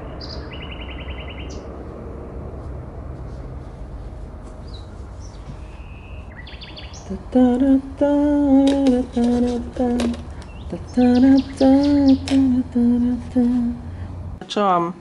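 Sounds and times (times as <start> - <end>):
faint bird chirps: 0.0 - 1.7, 4.6 - 7.2, 10.4 - 12.4.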